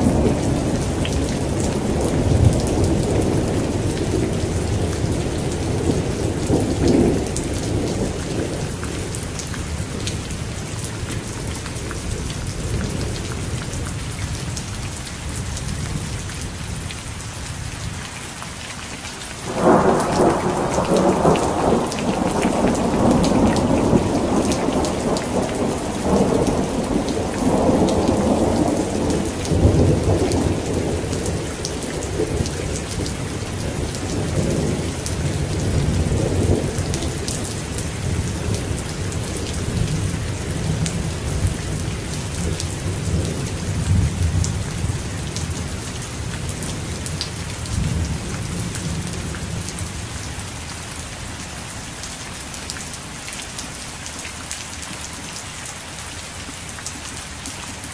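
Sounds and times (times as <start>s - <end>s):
heavy rain falling: 0.0s - 57.9s
rolling thunder rumbling: 19.4s - 45.7s.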